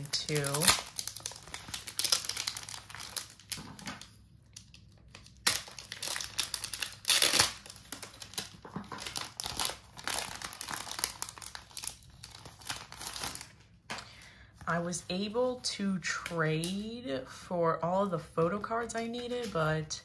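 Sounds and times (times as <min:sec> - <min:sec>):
plastic sleeve crinkling: 0:00.0 - 0:14.6.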